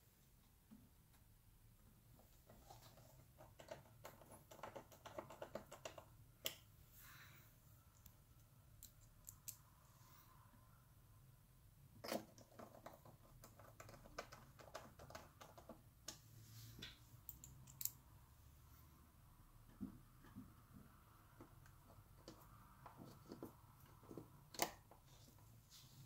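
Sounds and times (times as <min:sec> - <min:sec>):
screwdriver and small parts clicking: 0:08.8 - 0:09.6, 0:17.3 - 0:18.0.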